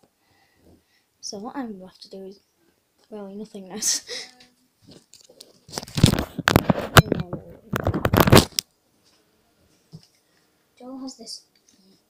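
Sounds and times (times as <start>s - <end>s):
microphone rubbing against clothing: 6.0s - 8.5s.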